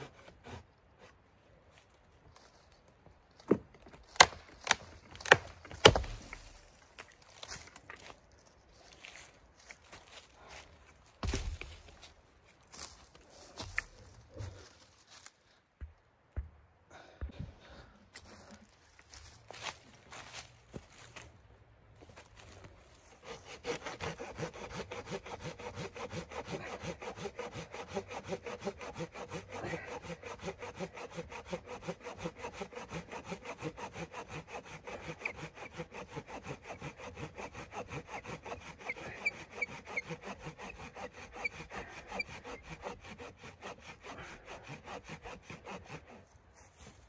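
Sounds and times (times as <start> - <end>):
hand saw cutting log: 0.0 - 0.7, 4.2 - 6.6, 23.1 - 47.0.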